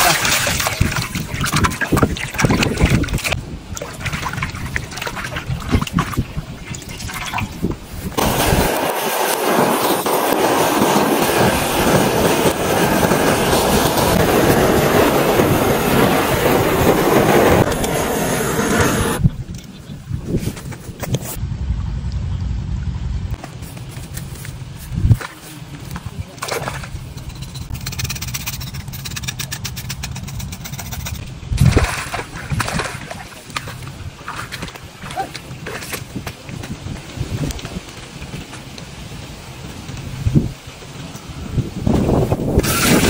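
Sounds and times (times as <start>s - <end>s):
gas torch hissing: 8.2s - 19.2s, 42.5s - 43.0s.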